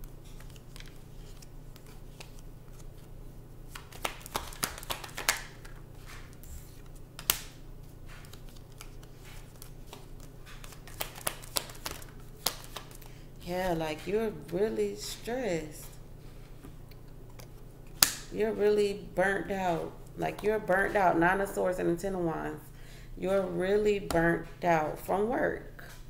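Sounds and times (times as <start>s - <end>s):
cards shuffled: 0.1s - 3.1s, 3.7s - 13.2s.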